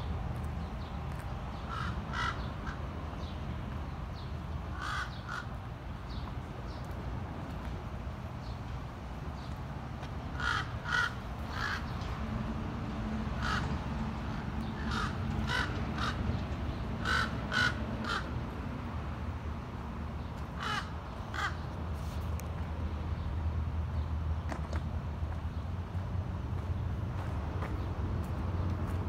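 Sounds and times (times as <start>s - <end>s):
bird calling: 1.7s - 2.8s, 4.7s - 5.5s, 14.3s - 16.3s.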